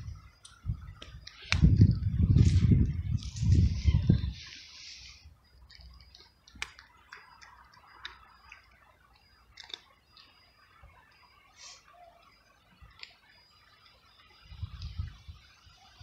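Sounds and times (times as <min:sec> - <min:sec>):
cat crunching dry kibble: 0:05.6 - 0:09.9.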